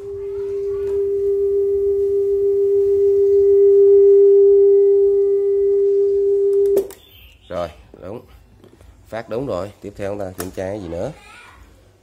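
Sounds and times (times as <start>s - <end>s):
steady test tone: 0.0s - 7.6s.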